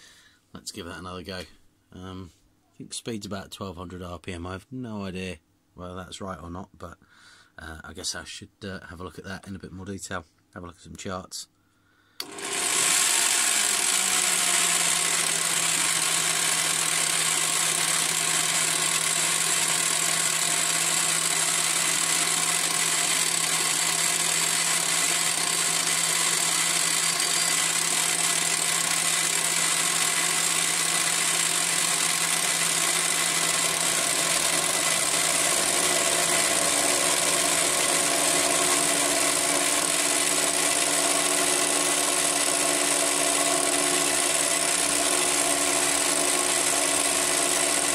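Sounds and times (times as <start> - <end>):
drill press milling metal: 12.2 - 47.9
electric drill turning: 12.2 - 47.9.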